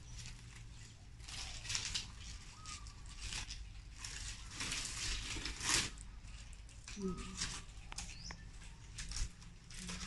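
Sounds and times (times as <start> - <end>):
palm leaves rustling: 0.0 - 10.0.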